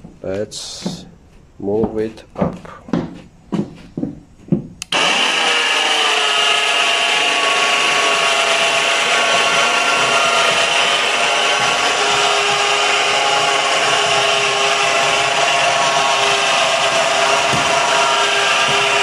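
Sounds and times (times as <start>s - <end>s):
electric winch whining: 4.8s - 19.0s.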